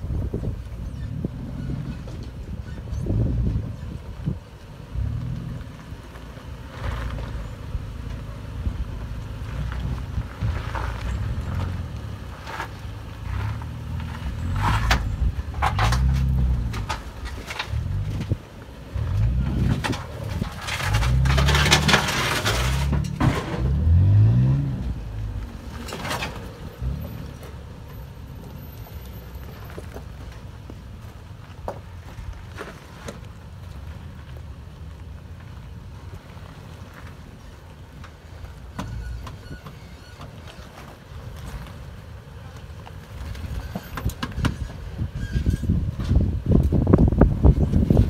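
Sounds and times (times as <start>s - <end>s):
tyres scraping on rock: 9.4s - 34.1s
engine revving: 19.0s - 27.4s.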